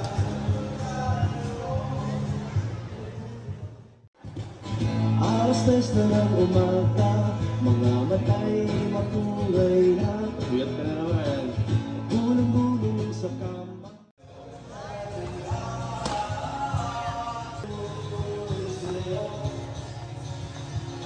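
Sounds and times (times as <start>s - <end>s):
acoustic guitar strumming: 4.2s - 14.0s, 17.7s - 21.0s
person singing into a microphone: 5.1s - 14.0s, 14.6s - 19.9s.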